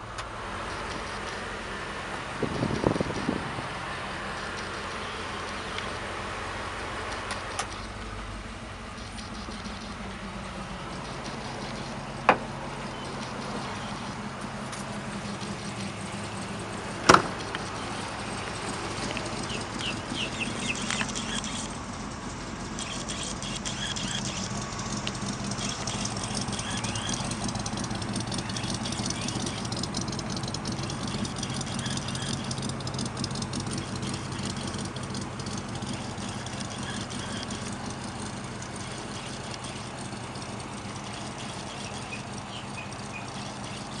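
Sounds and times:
vehicle engine idling: 0:00.0 - 0:44.0
birds chirping faintly: 0:03.9 - 0:44.0.

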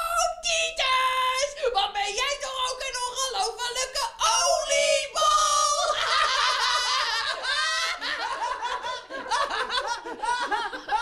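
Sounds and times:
high-pitched laughter: 0:05.8 - 0:11.0.

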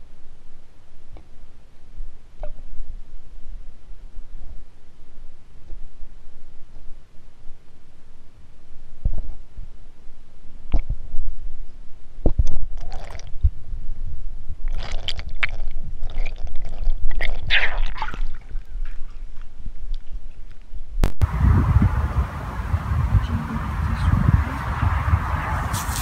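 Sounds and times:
water gurgling: 0:12.7 - 0:13.5, 0:14.7 - 0:19.2.

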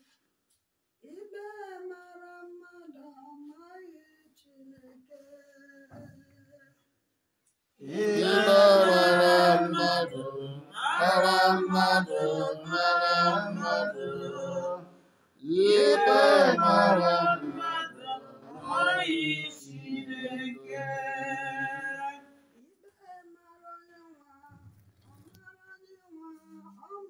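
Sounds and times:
unaccompanied voices chanting: 0:07.8 - 0:22.3.

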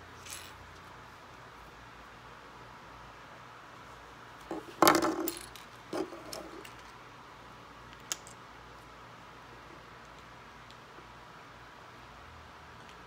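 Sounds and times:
plastic bricks rattling on wood: 0:04.5 - 0:06.6.

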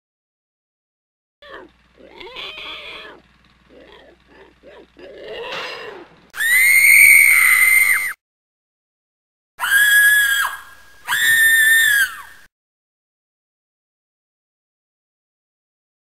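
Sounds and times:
grunting and squealing voice: 0:01.4 - 0:06.2
high-pitched scream: 0:06.4 - 0:08.2, 0:09.6 - 0:12.5.

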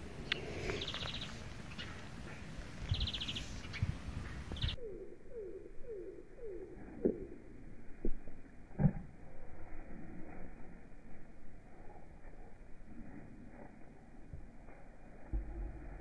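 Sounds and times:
wind rumbling on microphone: 0:00.0 - 0:04.9
songbird buzzy trills: 0:00.3 - 0:02.1.

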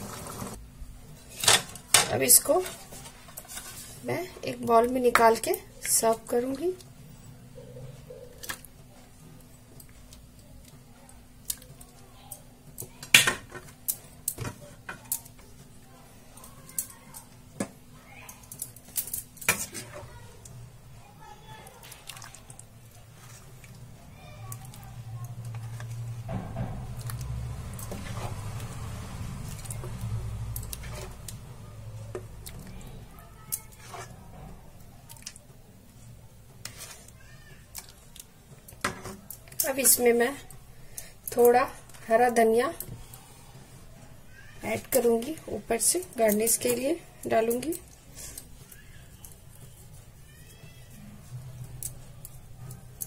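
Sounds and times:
wet squelching of gravy: 0:21.6 - 0:26.1, 0:27.0 - 0:31.4.

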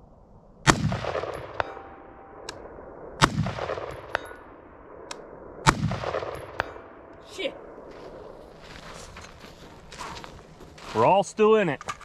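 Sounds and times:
rifle shots echoing: 0:00.6 - 0:08.4
steel target ringing: 0:01.2 - 0:02.5, 0:03.9 - 0:04.6.

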